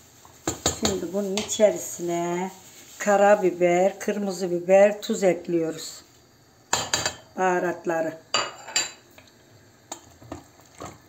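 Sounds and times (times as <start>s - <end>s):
kitchenware clinking on steel pot: 6.7s - 7.3s, 8.4s - 9.0s.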